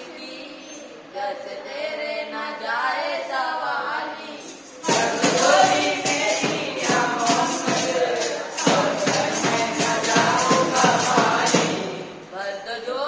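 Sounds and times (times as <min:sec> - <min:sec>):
boys singing: 0:00.0 - 0:13.0
rhythmic percussive beat: 0:04.2 - 0:12.4.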